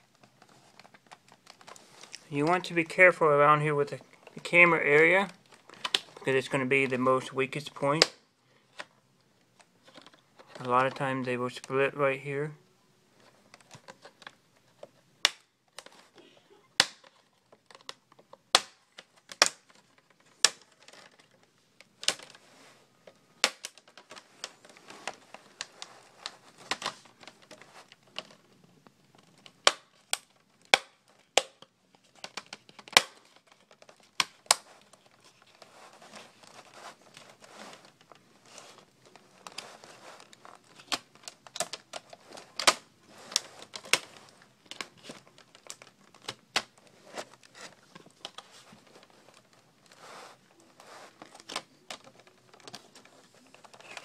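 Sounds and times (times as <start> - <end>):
plastic creaking: 15.7 - 22.4, 23.0 - 54.0.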